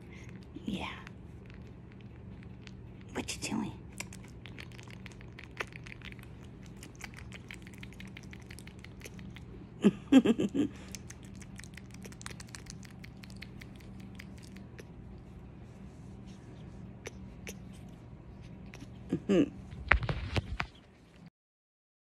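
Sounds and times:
faint steady hum: 0:00.0 - 0:21.3
person's voice: 0:00.6 - 0:01.1, 0:03.1 - 0:03.8.

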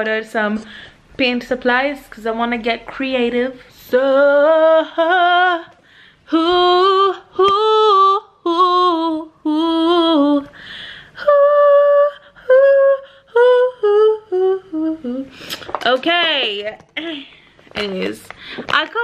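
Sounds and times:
breath: 0:00.6 - 0:01.0, 0:05.8 - 0:06.3, 0:10.5 - 0:11.2, 0:18.3 - 0:18.7
woman singing unaccompanied: 0:01.2 - 0:10.6, 0:11.2 - 0:15.4.

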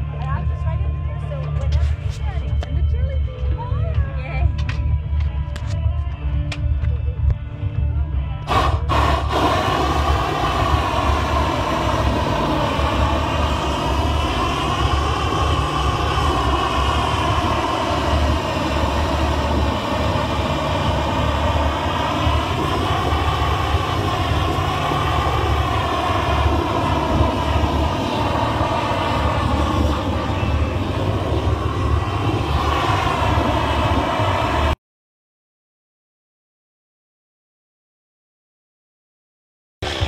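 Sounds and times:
propane torch roaring: 0:08.4 - 0:34.8.

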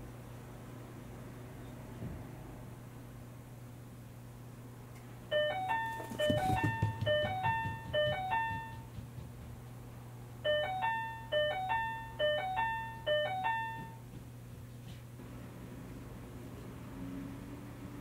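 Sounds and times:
electronic two-tone door chime: 0:05.3 - 0:08.8, 0:10.4 - 0:14.0
cat running soft thumps: 0:05.9 - 0:09.7.

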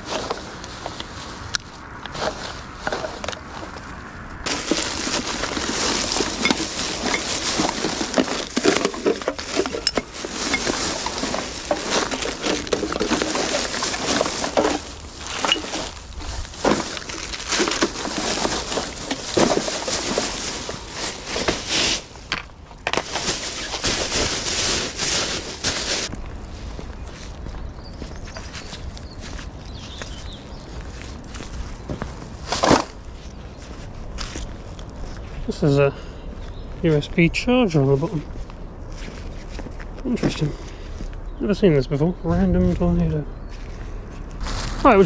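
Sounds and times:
plastic rubbish bag rustling: 0:00.0 - 0:01.5, 0:02.1 - 0:03.8, 0:04.4 - 0:26.2, 0:44.4 - 0:45.0.

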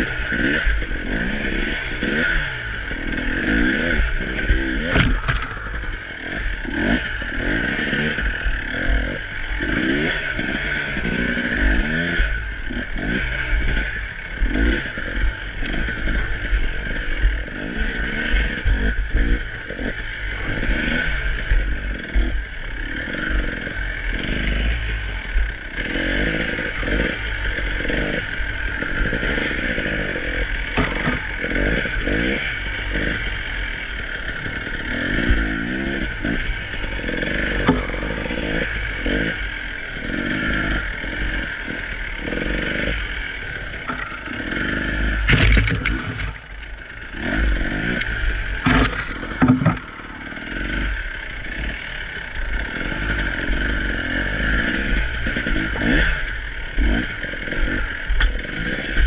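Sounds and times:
two-stroke motorcycle engine revving: 0:00.0 - 0:59.0
bike knocking and clattering: 0:04.6 - 0:06.0, 0:30.7 - 0:32.2, 0:37.6 - 0:39.2, 0:48.0 - 0:50.2.

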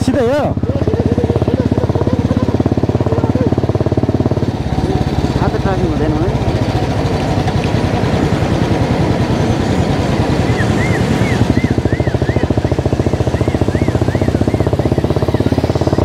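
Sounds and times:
motorcycle engine running: 0:00.0 - 0:16.0
warbling electronic tone: 0:07.9 - 0:16.0.

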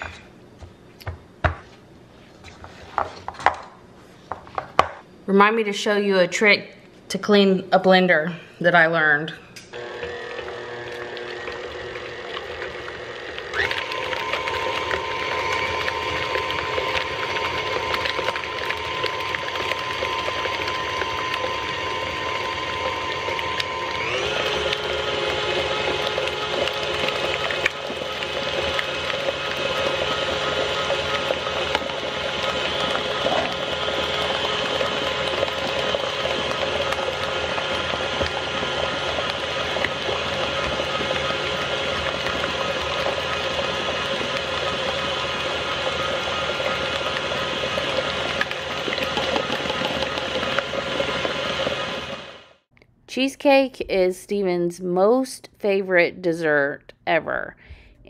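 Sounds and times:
stand mixer running: 0:09.8 - 0:52.6.

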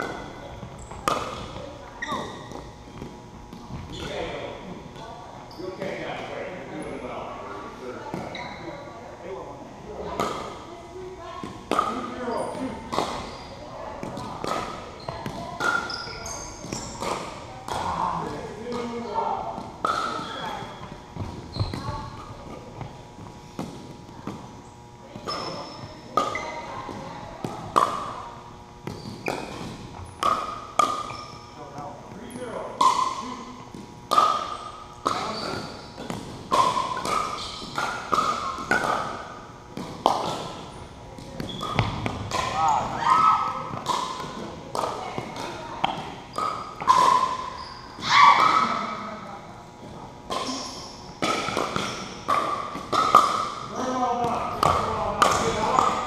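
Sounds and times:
paddles hitting plastic ball: 0:00.0 - 0:01.7, 0:12.8 - 0:13.3, 0:14.0 - 0:16.0, 0:16.6 - 0:20.6, 0:25.2 - 0:28.2, 0:28.8 - 0:32.2, 0:32.8 - 0:48.7, 0:49.8 - 0:56.0
ball bouncing on hardwood floor: 0:19.6 - 0:24.5, 0:41.2 - 0:42.5.

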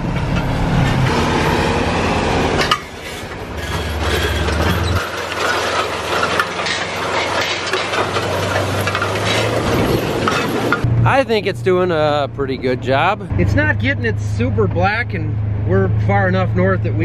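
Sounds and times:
tractor diesel engine humming: 0:00.0 - 0:17.0
ripper rattling and clanking: 0:02.6 - 0:10.9.

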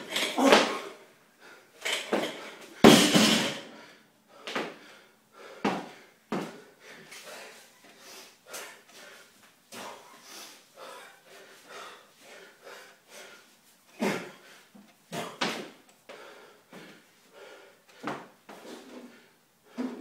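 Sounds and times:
man breathing hard: 0:03.6 - 0:15.4, 0:16.0 - 0:20.0.

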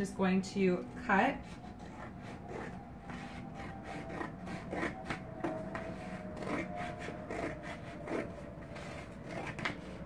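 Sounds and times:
scissors cutting cardboard: 0:01.4 - 0:10.0.

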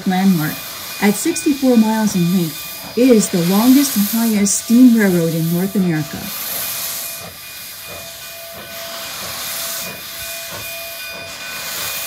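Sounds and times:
steam exhaust chuffs: 0:00.0 - 0:12.0
steam locomotive hissing: 0:00.0 - 0:12.0.

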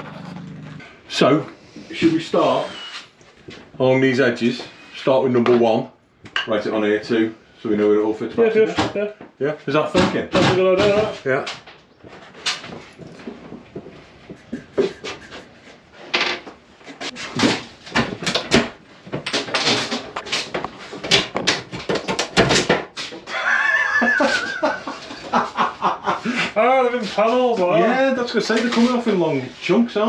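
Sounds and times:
long squeak: 0:02.5 - 0:03.1.

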